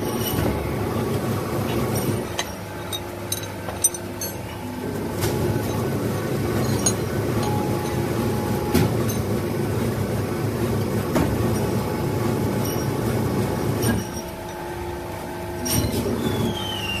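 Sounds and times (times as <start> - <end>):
machine heavy mechanical rumble: 0.0 - 17.0
metal clinks: 1.7 - 4.7, 5.6 - 8.2, 12.5 - 13.1, 13.7 - 14.8, 15.6 - 16.2.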